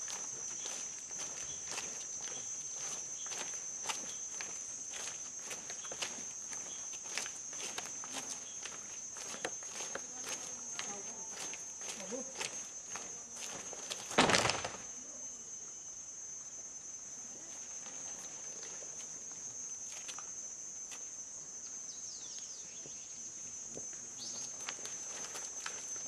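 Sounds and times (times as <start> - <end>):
high-pitched insect buzz: 0.0 - 26.0
burst of group movement noise: 7.1 - 14.9.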